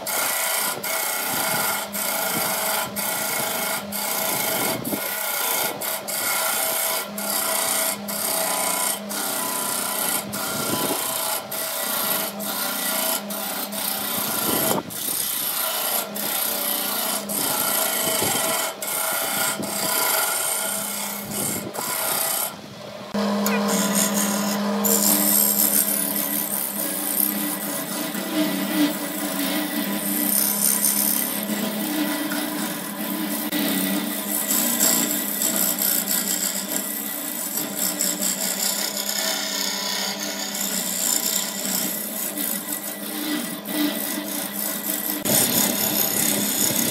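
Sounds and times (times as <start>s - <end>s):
chisel scraping spinning wood: 0.0s - 46.9s
wood lathe hum: 0.0s - 46.9s.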